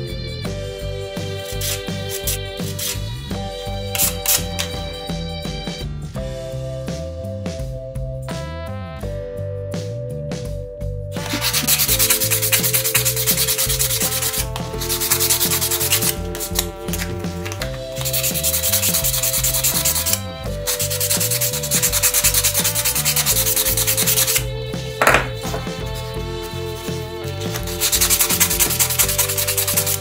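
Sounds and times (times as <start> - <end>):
sandpaper rubbing on lacquer: 1.4 - 3.0, 4.0 - 4.7, 11.2 - 24.4, 25.2 - 30.0.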